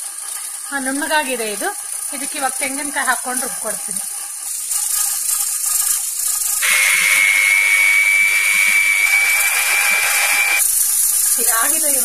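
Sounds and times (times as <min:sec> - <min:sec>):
mixer grinder whining: 0:06.6 - 0:10.7.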